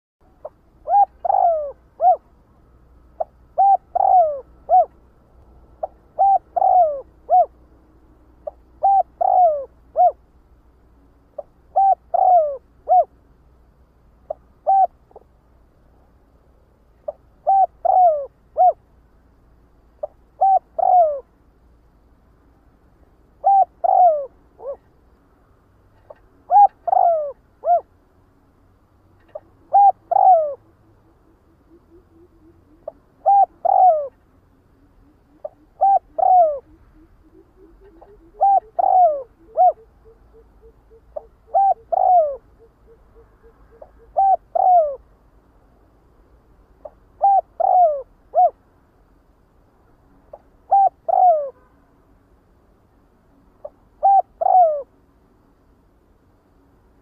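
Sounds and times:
dove cooing: 0.3 - 2.4, 3.0 - 5.0, 5.7 - 7.6, 8.4 - 10.2, 11.4 - 13.2, 14.3 - 15.3, 17.0 - 18.8, 20.0 - 21.3, 23.4 - 24.9, 26.0 - 27.9, 29.2 - 30.9, 31.6 - 45.0, 46.8 - 48.6, 50.3 - 51.6, 53.6 - 54.9.

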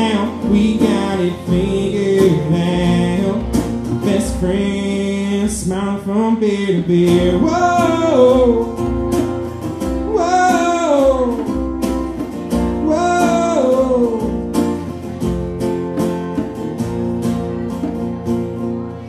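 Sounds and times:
man singing: 0.0 - 14.9
strummed acoustic guitar: 0.0 - 19.0.

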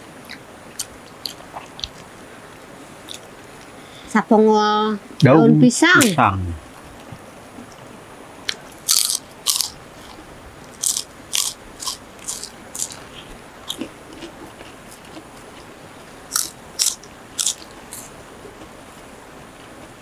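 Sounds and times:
crunchy food chewing: 8.5 - 15.7, 16.3 - 18.7.

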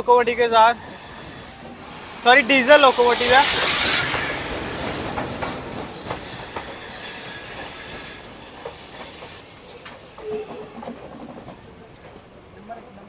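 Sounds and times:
train wheels rumbling on rails: 0.0 - 13.0
faint wheel squeal: 0.4 - 1.8, 3.7 - 11.1
wheels clacking over rail joints: 2.6 - 13.0.

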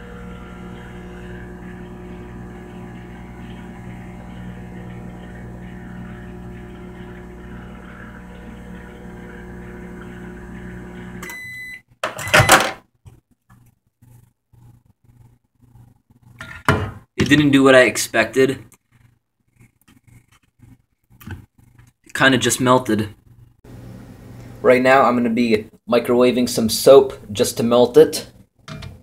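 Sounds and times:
microwave oven humming: 0.0 - 12.6, 23.7 - 25.1
microwave beep: 9.5 - 12.7.

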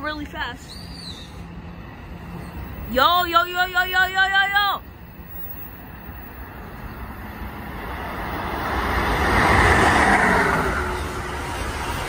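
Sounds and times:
train passing at speed: 0.0 - 12.0.

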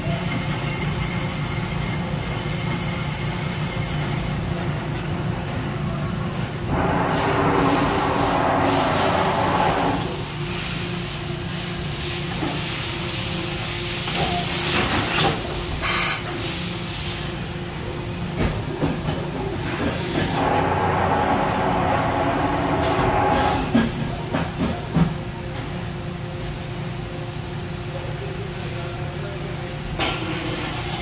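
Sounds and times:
cnc lathe spindle running: 0.2 - 10.4, 20.2 - 24.3
loud bursts of hissing: 6.7 - 11.1.

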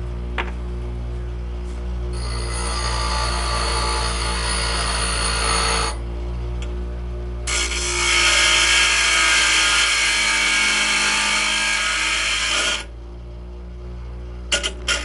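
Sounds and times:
grinder motor hum: 0.0 - 15.0
metal rod grinding on wheel: 2.2 - 6.0, 7.5 - 12.9, 14.5 - 15.0.

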